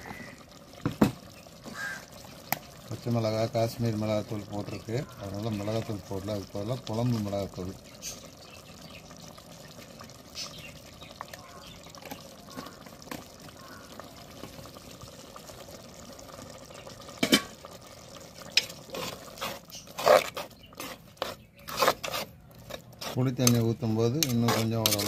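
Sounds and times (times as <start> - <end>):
curry bubbling in a pot: 0.0 - 25.0
steel spoon scraping clay pot: 18.5 - 25.0.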